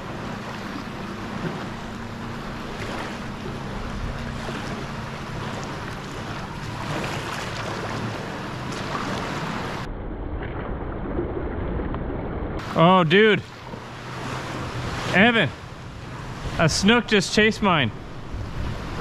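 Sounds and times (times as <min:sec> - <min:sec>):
small waves lapping: 0:00.0 - 0:09.9, 0:12.6 - 0:19.0
low steady hum: 0:00.0 - 0:19.0
wind buffeting microphone: 0:17.9 - 0:19.0.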